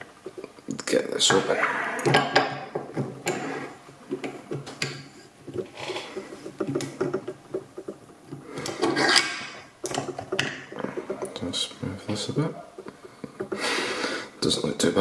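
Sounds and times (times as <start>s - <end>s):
light metal clicks and knocks: 4.1s - 8.9s.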